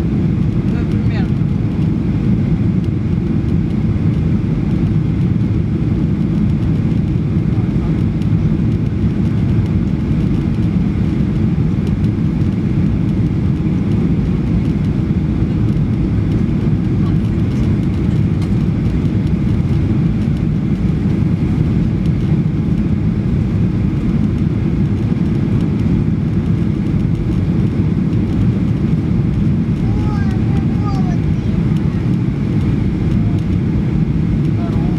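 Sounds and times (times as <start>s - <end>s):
airflow over fuselage: 0.0s - 34.9s
airplane cabin engine rumble: 0.0s - 34.9s.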